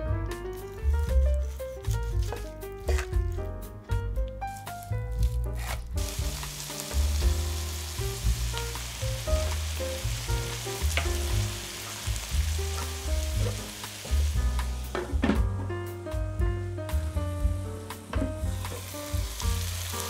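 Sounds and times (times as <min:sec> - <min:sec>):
background music with bass line: 0:00.0 - 0:20.0
food sizzling in a pan: 0:04.8 - 0:15.0, 0:16.9 - 0:20.0
knife cutting on wooden board: 0:05.5 - 0:05.9.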